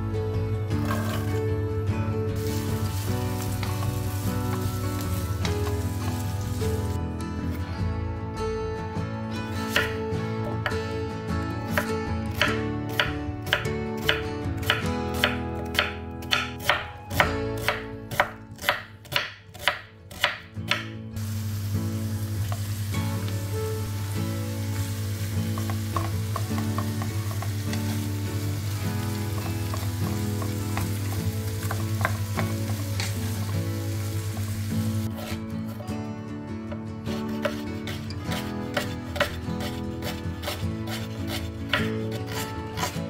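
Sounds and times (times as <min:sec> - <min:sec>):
vegetables sizzling in a pan: 0:02.4 - 0:07.0, 0:21.2 - 0:35.4
knife cutting on wooden board: 0:35.1 - 0:35.4, 0:37.1 - 0:43.0.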